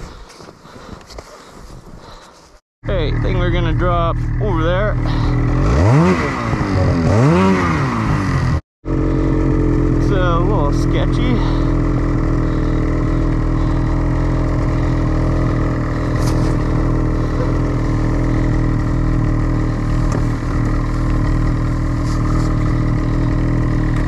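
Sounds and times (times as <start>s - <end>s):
snowmobile engine running steadily: 2.9s - 24.0s.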